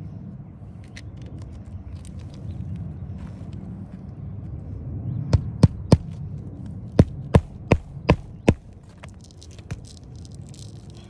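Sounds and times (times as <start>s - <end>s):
hammer driving nails into shingle: 7.0s - 8.7s.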